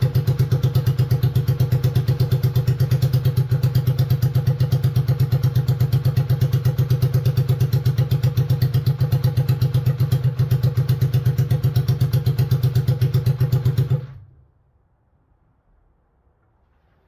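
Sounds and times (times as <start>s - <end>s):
motorcycle engine idling: 0.0s - 14.3s.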